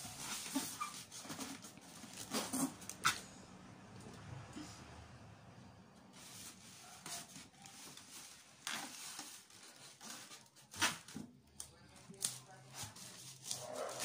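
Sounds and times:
foam packing rubbing: 0.0 - 3.2, 6.1 - 11.1
plastic wrap crinkling: 6.2 - 14.0.

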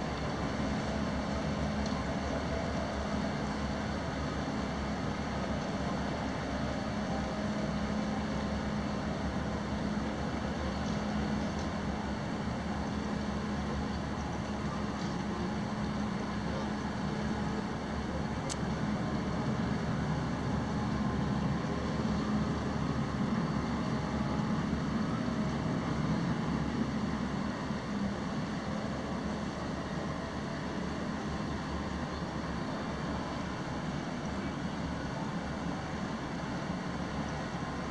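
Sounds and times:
faint tick: 1.8 - 2.1, 10.8 - 11.8.

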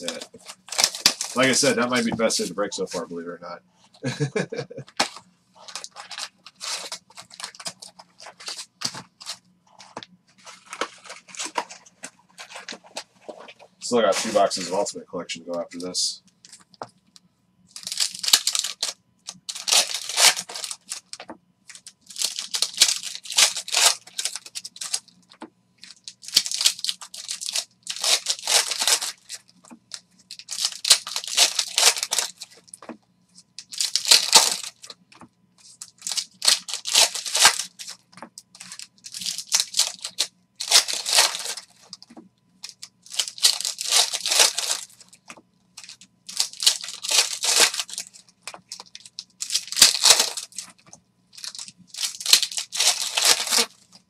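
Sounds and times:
foil wrappers tearing and crinkling: 0.0 - 2.6, 5.0 - 9.4, 17.7 - 25.2, 25.8 - 32.9, 33.6 - 35.0, 35.6 - 54.0.

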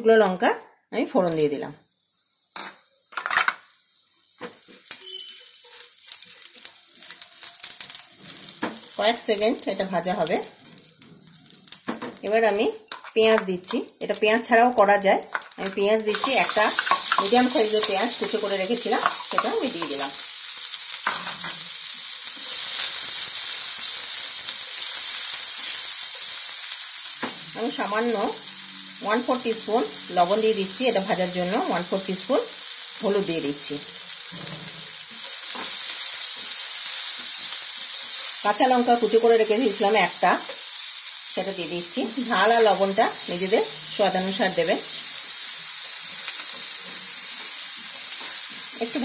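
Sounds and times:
spices sizzling and crackling in oil: 1.3 - 49.0
spatula stirring in wok: 16.1 - 20.2.

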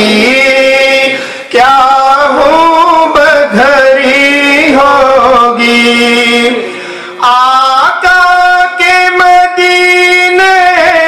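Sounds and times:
man singing into a microphone: 0.0 - 11.0
breath: 1.2 - 1.5, 6.6 - 7.2.

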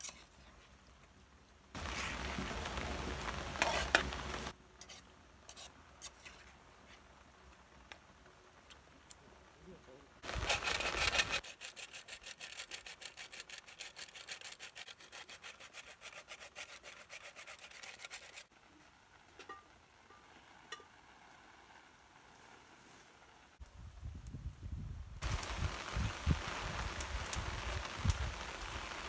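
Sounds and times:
nutmeg rasping on metal grater: 10.4 - 18.5.

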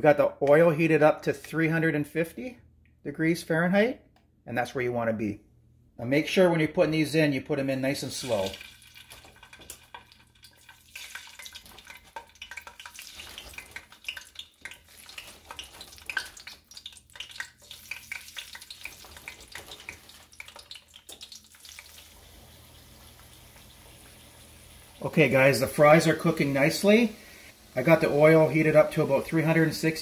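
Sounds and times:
fries sizzling in oil: 7.9 - 30.0.

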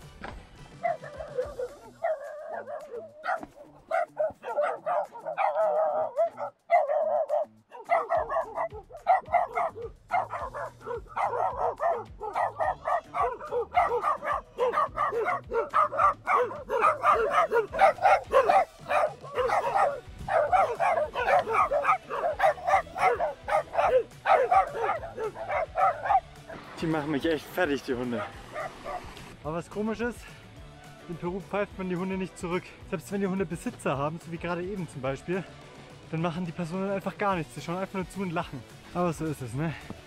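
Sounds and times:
dogs barking: 0.7 - 26.6, 27.7 - 29.4.

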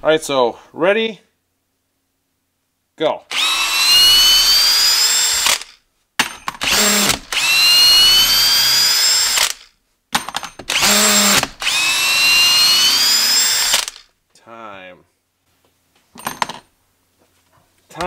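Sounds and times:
drill clicks: 3.3 - 5.8, 6.4 - 14.1
drill whining driving screw: 3.3 - 5.8, 6.5 - 9.7, 10.6 - 14.1.

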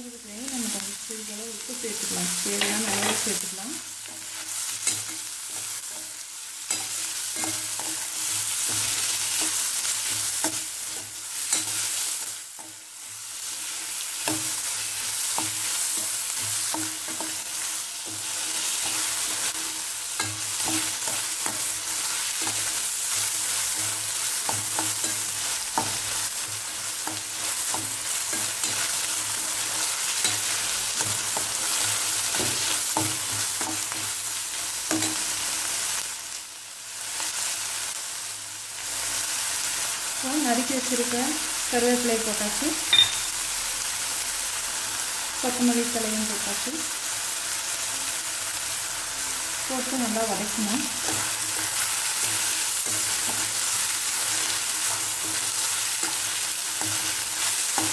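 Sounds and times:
vegetables sizzling in hot oil: 0.0 - 57.9
steel spoon clinking against pan: 4.0 - 6.1, 42.9 - 43.4.

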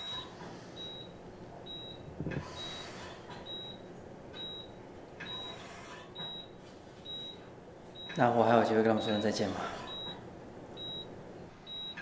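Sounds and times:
patient monitor beeping: 0.0 - 12.0.

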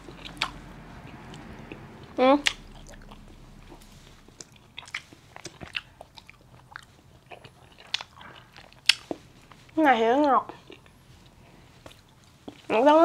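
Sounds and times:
person chewing sweets: 4.3 - 12.9.

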